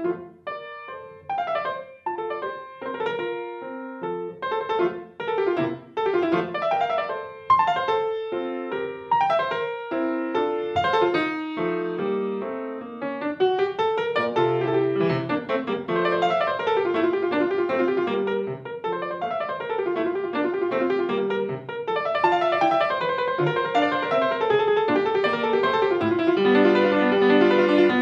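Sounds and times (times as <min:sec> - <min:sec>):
solo piano classical piece: 0:00.0 - 0:28.0.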